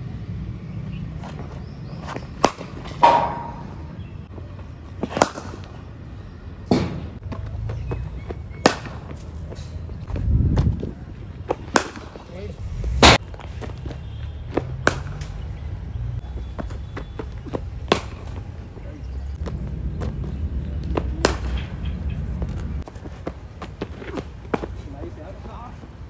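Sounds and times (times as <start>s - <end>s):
cricket bat striking ball: 2.3s - 3.9s, 11.5s - 12.2s, 14.5s - 15.2s, 17.4s - 18.4s
low rumble: 12.5s - 13.2s.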